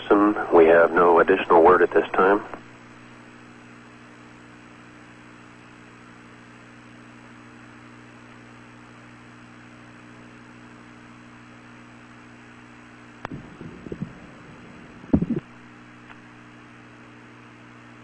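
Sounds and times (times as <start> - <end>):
electrical hum with hiss: 0.0 - 18.0
crackling bursts: 13.2 - 16.3.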